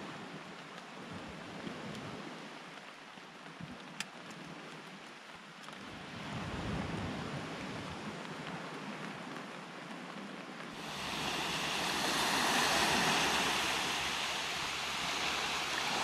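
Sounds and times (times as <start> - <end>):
ocean surf washing ashore: 10.6 - 16.0.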